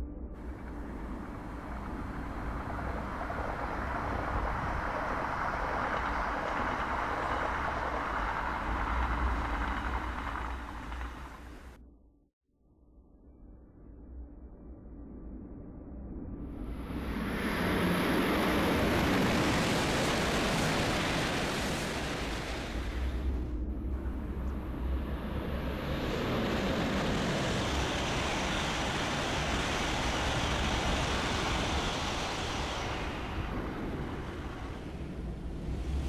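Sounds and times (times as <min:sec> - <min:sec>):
high-speed train rushing past: 0:00.4 - 0:11.8, 0:16.6 - 0:36.0.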